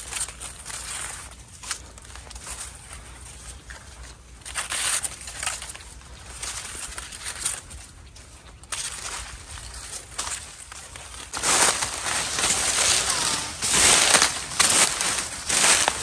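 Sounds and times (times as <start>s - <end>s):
dry corn leaves rustling: 0.0s - 16.0s
footsteps: 0.0s - 16.0s.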